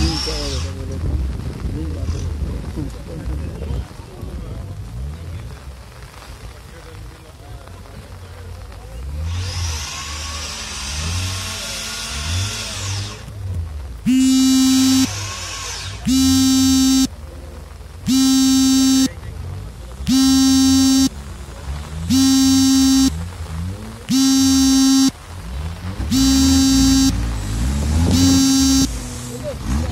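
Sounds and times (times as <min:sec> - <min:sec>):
vehicle engine revving: 0:07.7 - 0:29.9
horn blasts: 0:14.1 - 0:15.2, 0:16.0 - 0:17.1, 0:18.1 - 0:19.2, 0:20.0 - 0:21.2, 0:22.1 - 0:23.2, 0:24.1 - 0:25.2, 0:26.1 - 0:27.4, 0:28.0 - 0:29.0.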